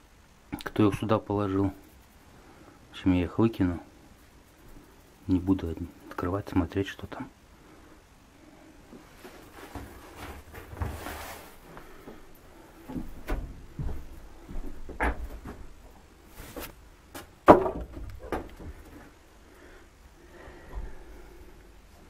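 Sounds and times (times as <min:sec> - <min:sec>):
fabric rustling: 0:09.0 - 0:12.0, 0:16.2 - 0:16.8
knocks and bumps against wood: 0:12.9 - 0:15.7, 0:17.2 - 0:19.0.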